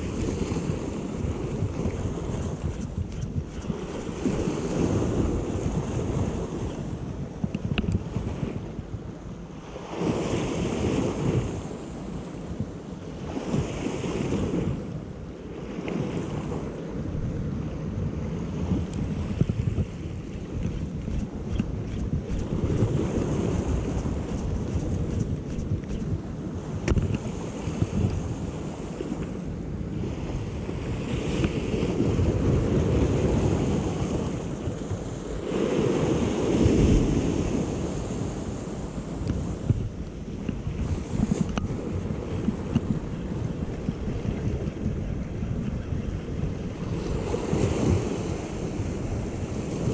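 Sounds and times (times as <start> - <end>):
sea waves washing against rocks: 0.0 - 14.9, 15.5 - 49.9
wind buffeting microphone: 0.0 - 49.9.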